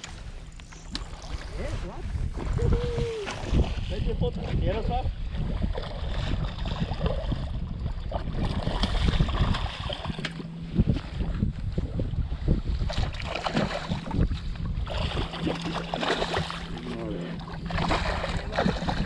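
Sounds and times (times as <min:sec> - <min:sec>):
steady low hum: 0:00.0 - 0:19.0
wind buffeting microphone: 0:00.0 - 0:19.0
fish thrashing and splashing: 0:05.6 - 0:10.5, 0:12.8 - 0:19.0.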